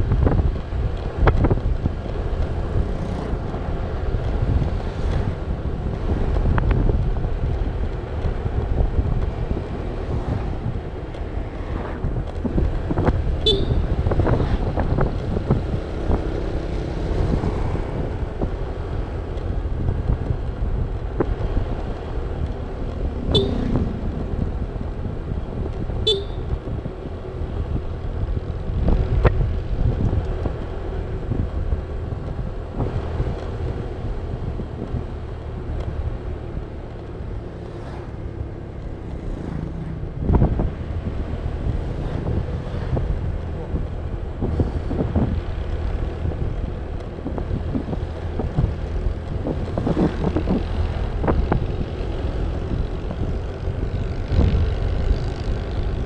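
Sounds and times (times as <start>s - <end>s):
scooter engine and road rumble: 0.0s - 56.0s
wind buffeting microphone: 0.0s - 56.0s
short horn beeps: 13.5s - 13.8s, 23.2s - 23.9s, 26.0s - 26.5s.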